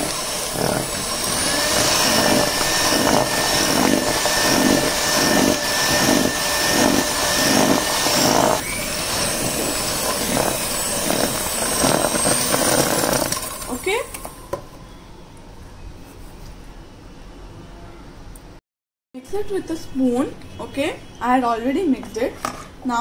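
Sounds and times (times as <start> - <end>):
electric hand mixer churning dough: 0.0 - 14.4.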